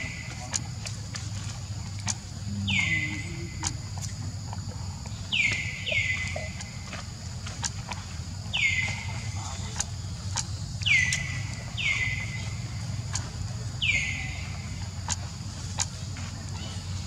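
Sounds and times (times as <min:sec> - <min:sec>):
sharp ticks: 0:00.0 - 0:16.6
low hum: 0:00.0 - 0:17.0
high animal calls: 0:02.4 - 0:04.3, 0:05.2 - 0:07.0.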